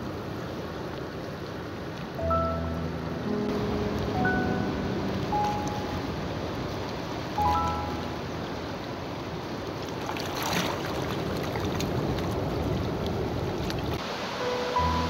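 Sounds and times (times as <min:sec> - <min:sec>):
seawater sloshing over rock: 0:09.6 - 0:13.9.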